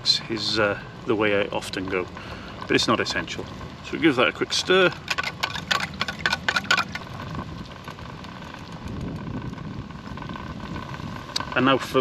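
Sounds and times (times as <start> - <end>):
stove hissing: 0.0 - 12.0
metal spoon scraping a tin can: 4.9 - 7.1.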